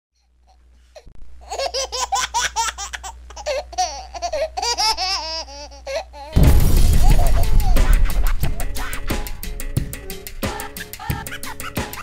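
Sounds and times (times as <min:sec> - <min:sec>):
person laughing: 0:06.4 - 0:09.4, 0:10.4 - 0:12.0
low hum: 0:06.4 - 0:10.8.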